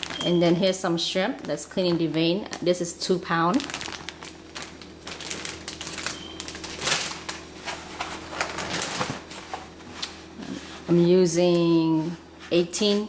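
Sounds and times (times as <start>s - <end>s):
plastic bag crinkling: 0.0s - 9.5s.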